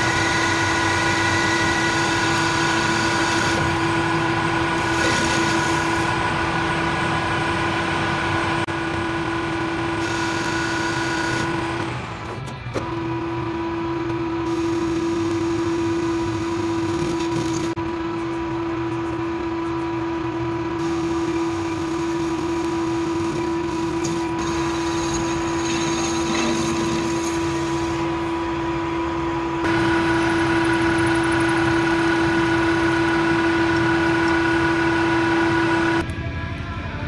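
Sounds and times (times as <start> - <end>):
metal lathe motor hum: 0.0 - 12.2, 17.8 - 36.0
high-pitched whine: 20.8 - 37.0
drill boring into metal: 29.7 - 33.3.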